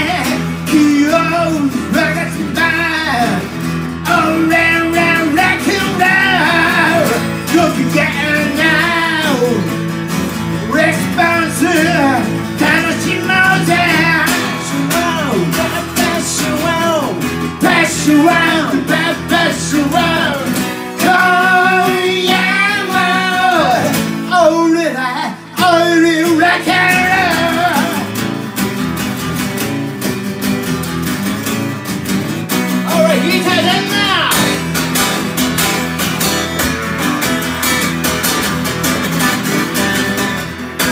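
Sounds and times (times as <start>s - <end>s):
person singing into a microphone: 0.0s - 9.7s, 10.7s - 28.1s
acoustic guitars strumming: 0.0s - 40.9s.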